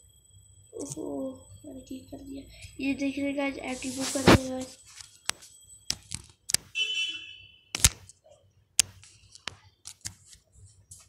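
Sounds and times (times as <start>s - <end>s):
sharp clicks: 5.2s - 6.7s, 7.7s - 8.2s.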